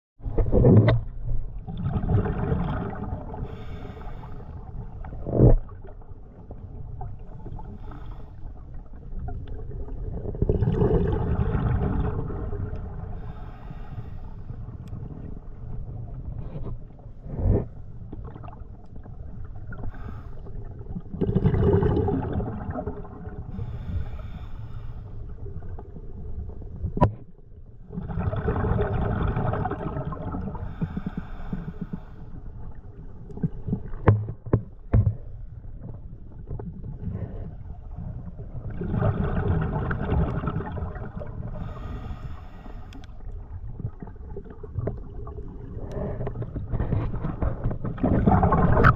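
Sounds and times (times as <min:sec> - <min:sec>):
exhaled bubbles: 0:00.2 - 0:08.0, 0:08.9 - 0:13.5, 0:17.2 - 0:24.5, 0:27.8 - 0:32.1, 0:35.8 - 0:48.9
low underwater rumble: 0:00.2 - 0:48.9
diver breathing through regulator: 0:03.4 - 0:04.7, 0:13.2 - 0:14.6, 0:23.5 - 0:25.3, 0:30.6 - 0:32.4, 0:41.6 - 0:43.2.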